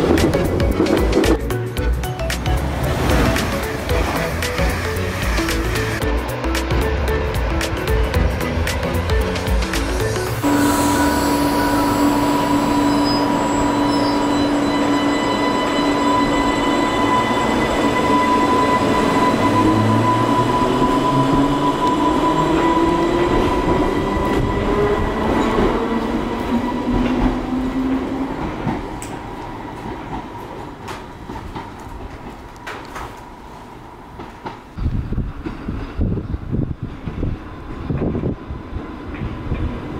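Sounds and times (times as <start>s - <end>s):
electric train traction motors whining: 9.3s - 28.1s.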